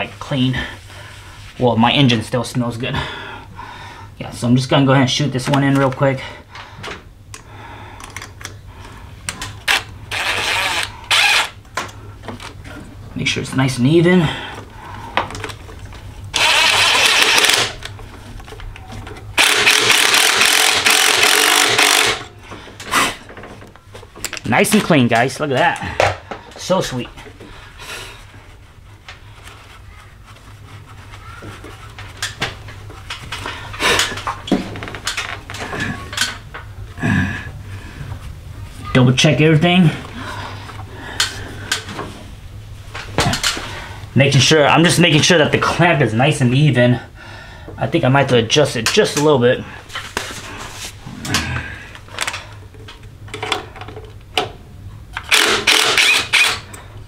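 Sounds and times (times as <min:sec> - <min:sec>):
steady low hum: 0:00.0 - 0:57.0
cordless drill running: 0:09.7 - 0:11.6, 0:16.4 - 0:17.8, 0:19.4 - 0:22.3, 0:55.3 - 0:56.7.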